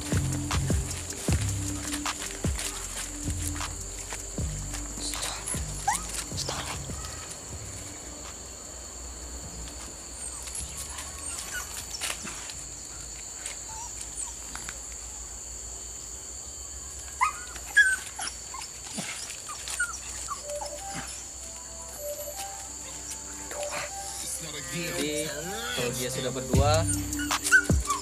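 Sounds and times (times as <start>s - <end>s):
steady high hiss: 0.0s - 28.0s
puppies whimpering and yipping: 5.0s - 8.0s, 10.2s - 12.5s, 13.4s - 14.6s, 17.2s - 28.0s.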